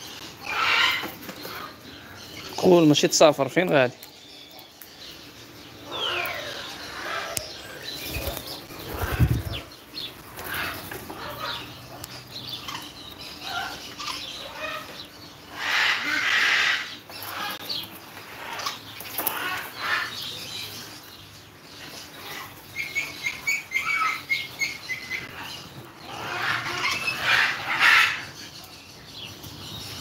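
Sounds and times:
birds chirping and whistling: 0:00.0 - 0:30.0.

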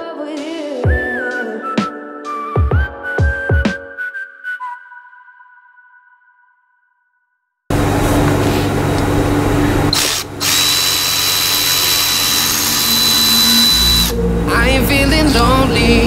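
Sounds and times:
power tool motor running: 0:07.7 - 0:14.2
high motor whine: 0:07.7 - 0:16.0.

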